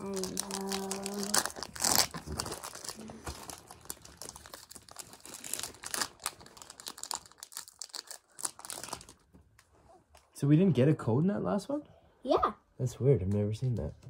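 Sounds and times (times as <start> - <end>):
foil wrapper crinkling: 0.0 - 9.3.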